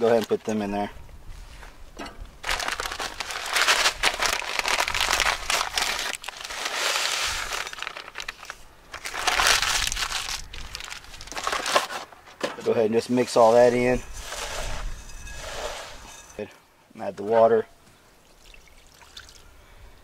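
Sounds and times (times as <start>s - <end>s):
plastic bag crinkling: 2.4s - 12.1s.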